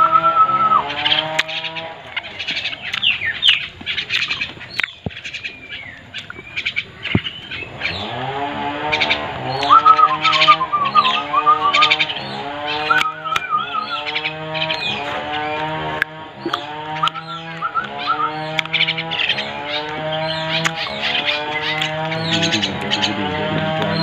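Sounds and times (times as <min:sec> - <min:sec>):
lower held wavering tones: 0:00.0 - 0:03.4, 0:08.9 - 0:19.6
small birds chirping: 0:00.0 - 0:24.0.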